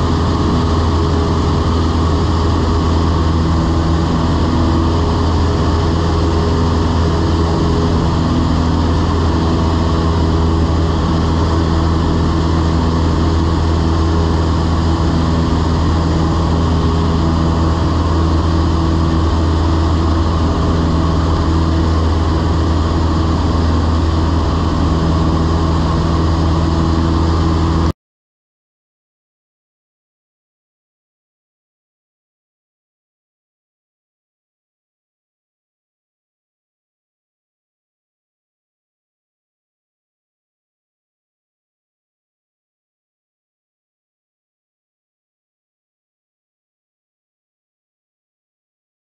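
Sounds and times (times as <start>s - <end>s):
airplane engine drone in cabin: 0.0s - 27.9s.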